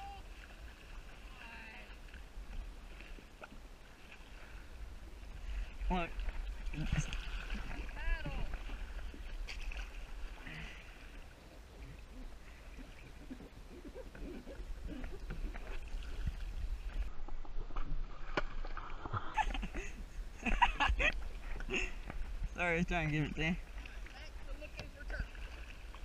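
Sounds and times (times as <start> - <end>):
kayak paddle splashing in water: 0.0 - 26.0.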